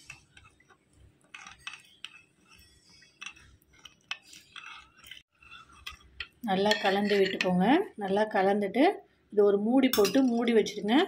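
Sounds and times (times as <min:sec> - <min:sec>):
spoon clinking and scraping bowl: 0:00.0 - 0:07.6.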